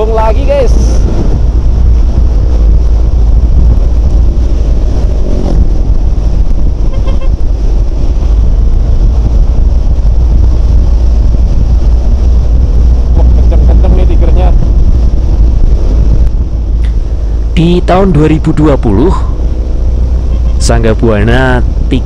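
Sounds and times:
wind roaring over microphone: 0.0s - 22.0s.

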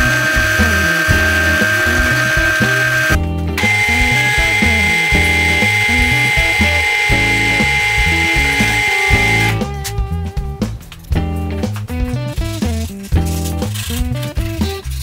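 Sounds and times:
drill press whine: 0.0s - 9.7s
background music with bass: 0.0s - 15.0s.

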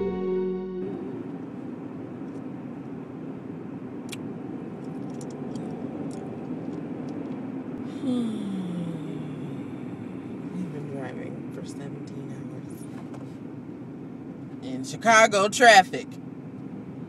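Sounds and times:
tone sliding down: 0.0s - 1.4s
guitar music: 0.0s - 1.5s
car cabin road noise: 0.8s - 17.0s.

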